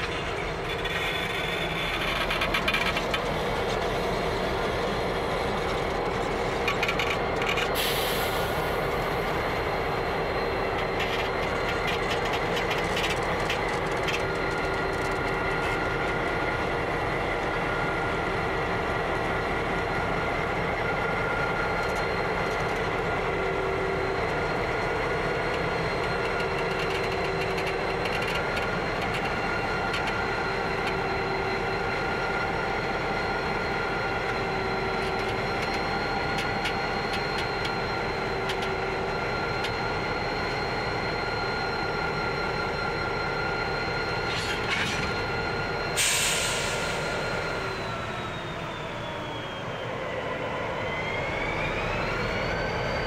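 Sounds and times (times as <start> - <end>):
locomotive engines running: 0.0 - 53.0
engine whining tones: 21.6 - 53.0.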